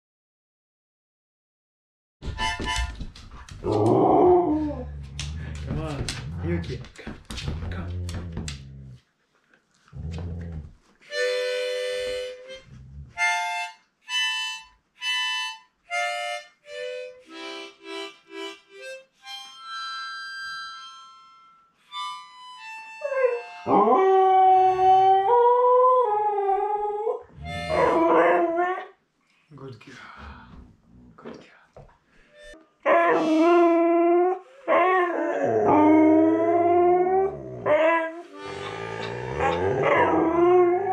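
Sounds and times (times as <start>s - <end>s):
harmonica playing: 2.2s - 3.0s, 11.1s - 24.1s, 27.4s - 28.1s, 32.2s - 33.5s, 38.2s - 39.7s
dog howling: 3.6s - 5.1s, 23.2s - 28.9s, 32.9s - 40.9s.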